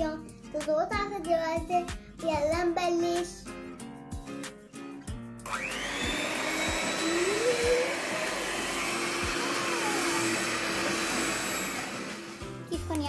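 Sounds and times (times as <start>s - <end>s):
electric hand mixer whining: 5.4s - 12.7s.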